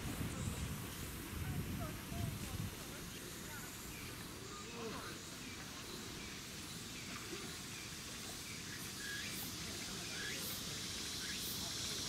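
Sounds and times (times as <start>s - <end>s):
steady hiss: 0.0s - 12.0s
faint bird chirps: 3.4s - 11.6s.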